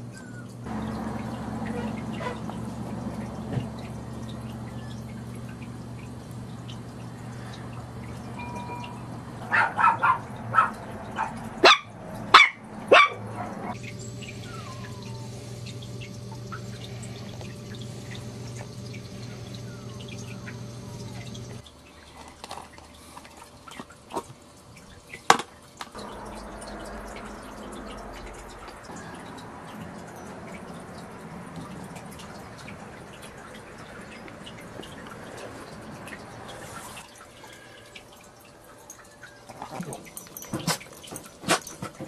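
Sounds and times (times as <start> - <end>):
steady background hum: 0.0 - 42.0
puppy yapping: 9.4 - 13.8, 14.4 - 15.3.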